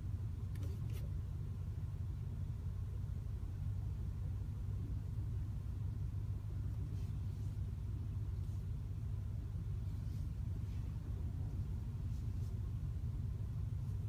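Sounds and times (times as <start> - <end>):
car engine rumble at low revs: 0.0 - 14.0
faint click: 0.5 - 1.1.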